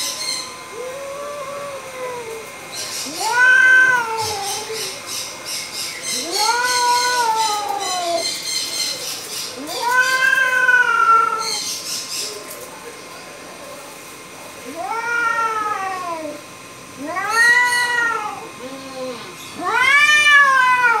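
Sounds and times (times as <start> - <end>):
cat yowling: 0.7 - 5.0, 6.1 - 8.4, 9.6 - 11.6, 14.6 - 16.4, 17.0 - 21.0.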